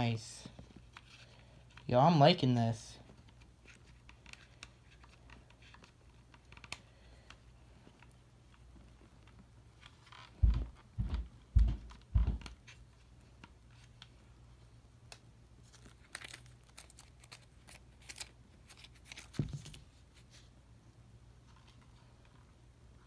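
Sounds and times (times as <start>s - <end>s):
dull thumps: 10.4s - 12.5s
packaging crinkling and tearing: 15.6s - 19.9s.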